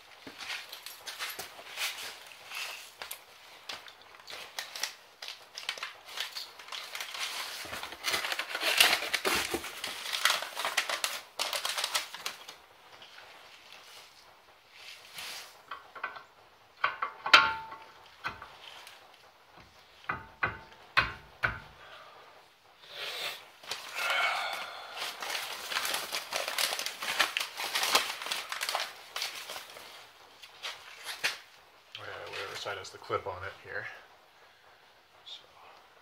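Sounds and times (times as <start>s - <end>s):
rustling handling noise: 0.0s - 20.1s, 23.3s - 34.0s
metal clicks and knocks: 15.7s - 18.6s, 20.1s - 21.7s.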